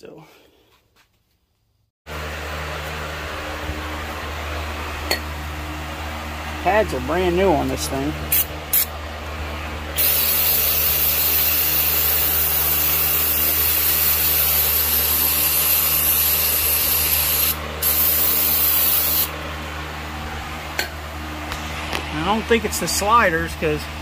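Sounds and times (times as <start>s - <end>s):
aerosol spray can hissing: 10.0s - 19.3s.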